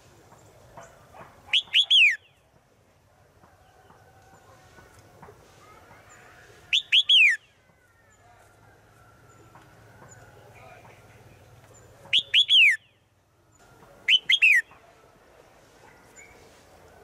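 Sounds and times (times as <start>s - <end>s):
bird whistled song: 1.5s - 2.4s, 6.7s - 7.6s, 11.8s - 13.0s, 14.0s - 14.8s.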